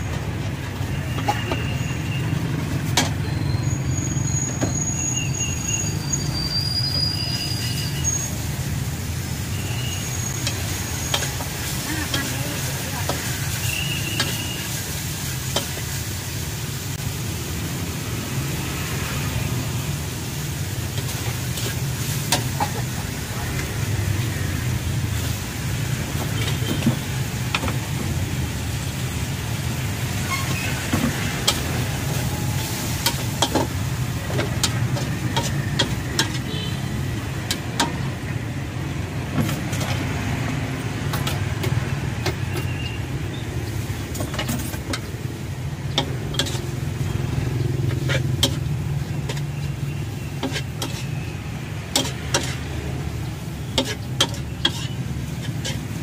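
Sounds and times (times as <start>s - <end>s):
food sizzling: 0.0s - 56.0s
metal spatula scraping wok: 5.1s - 16.3s, 29.5s - 56.0s.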